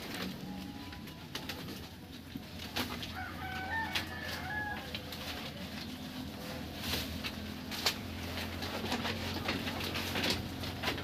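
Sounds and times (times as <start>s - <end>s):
rooster crowing: 3.1s - 5.1s.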